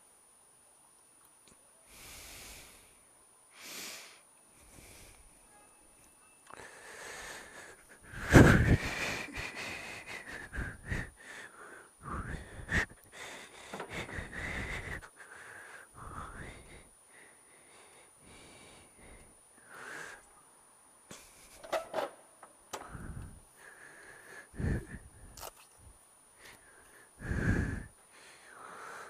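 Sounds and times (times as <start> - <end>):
person breathing noisily: 1.9 - 5.3, 6.5 - 20.3, 22.8 - 25.4, 26.4 - 29.0.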